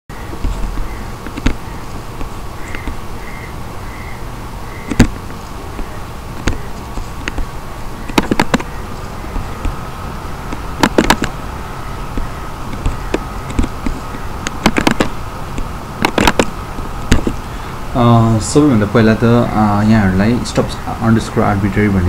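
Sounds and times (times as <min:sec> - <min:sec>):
background hiss with high whine: 0:00.1 - 0:22.0
computer mouse clicks: 0:07.2 - 0:08.7, 0:10.5 - 0:11.4, 0:12.2 - 0:16.5.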